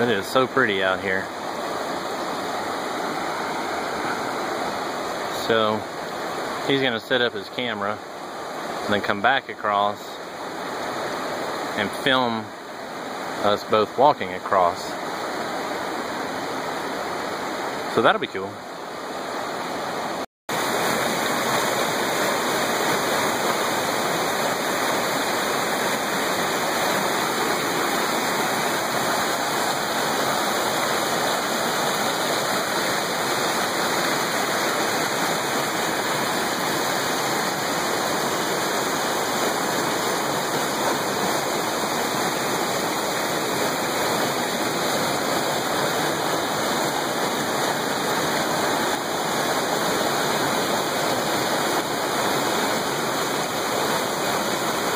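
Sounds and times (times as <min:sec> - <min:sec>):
stream rushing over boulders: 0:00.0 - 0:54.9.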